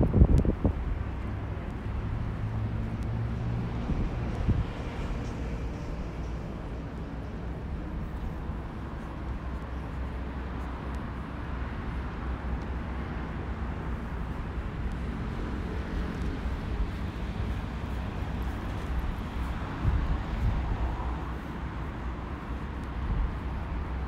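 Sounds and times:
low rumble of road traffic: 0:00.0 - 0:24.0.

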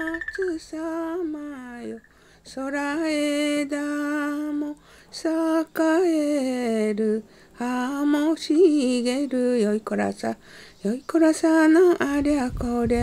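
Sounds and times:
person singing unaccompanied: 0:00.0 - 0:13.0.

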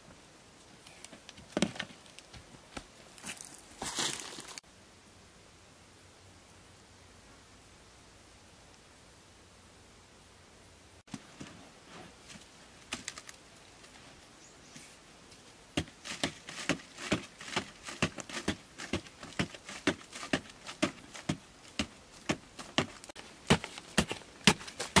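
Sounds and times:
faint hiss: 0:00.0 - 0:15.8
digging tool striking sandy earth: 0:15.8 - 0:25.0.

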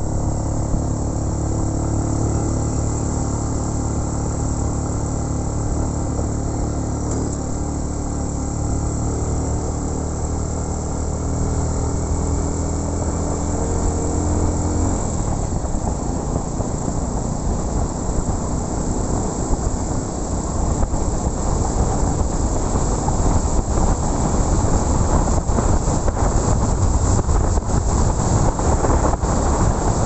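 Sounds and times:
motorcycle engine hum: 0:00.0 - 0:30.0
road noise: 0:00.0 - 0:30.0
wind buffeting microphone: 0:19.4 - 0:30.0.

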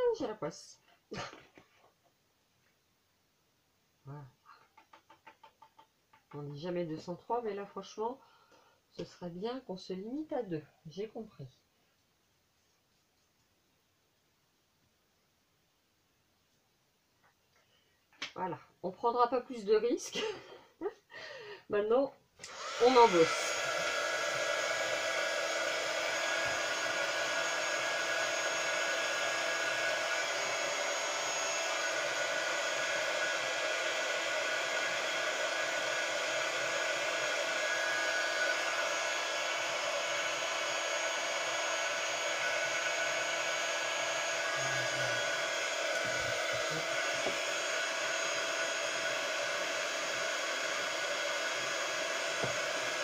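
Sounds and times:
heat gun fan whirring: 0:22.4 - 0:53.0.

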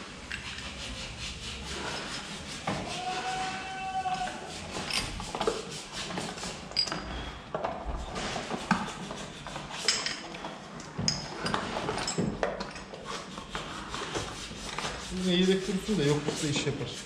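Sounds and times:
metal parts clinking: 0:06.7 - 0:07.1.

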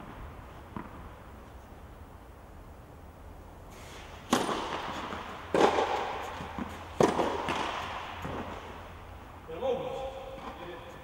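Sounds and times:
racket hitting tennis ball: 0:03.7 - 0:09.1
ball bouncing: 0:04.3 - 0:08.7.

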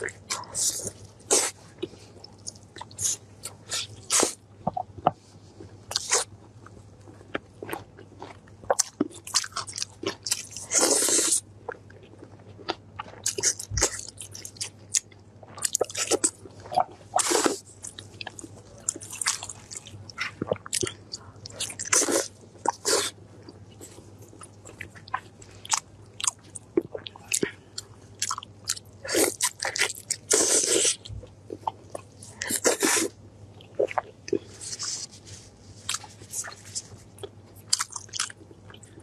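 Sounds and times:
person chewing and biting meat: 0:35.9 - 0:39.0.

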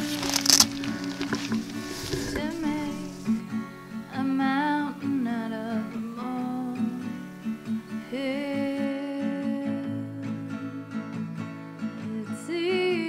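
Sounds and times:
acoustic guitar song with vocals: 0:00.0 - 0:13.0.

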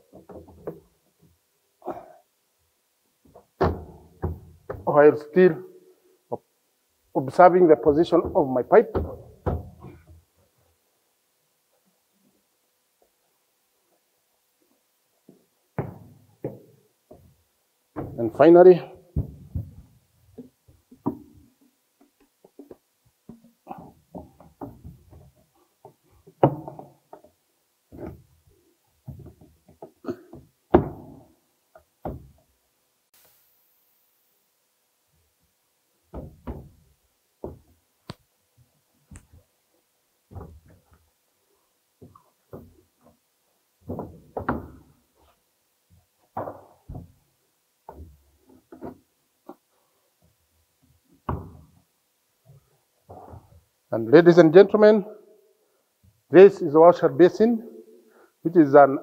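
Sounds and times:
plastic pipe knocks and clunks: 0:08.0 - 0:10.2, 0:15.3 - 0:17.4, 0:18.0 - 0:18.4, 0:19.1 - 0:21.5, 0:22.4 - 0:28.3, 0:29.0 - 0:32.5, 0:36.1 - 0:37.8, 0:43.8 - 0:45.0, 0:46.3 - 0:47.2, 0:51.2 - 0:51.8.

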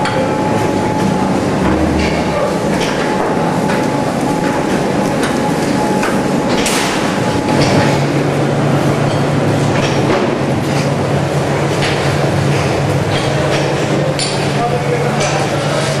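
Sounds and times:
high machine whine: 0:00.0 - 0:13.5
loud machinery noise: 0:00.0 - 0:16.0
low machine hum: 0:00.0 - 0:16.0
knocks and clatter: 0:01.6 - 0:04.6.

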